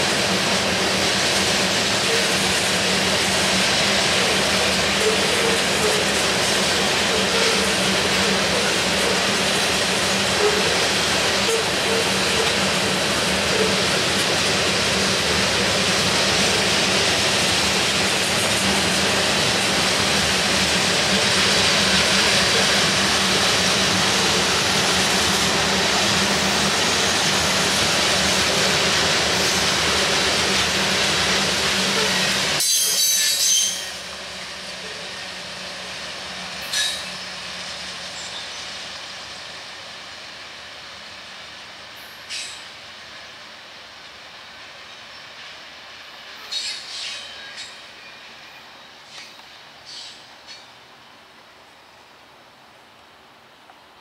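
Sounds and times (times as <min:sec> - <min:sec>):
freight train rolling past: 0:00.0 - 0:54.0
high-pitched squeak: 0:32.6 - 0:34.0.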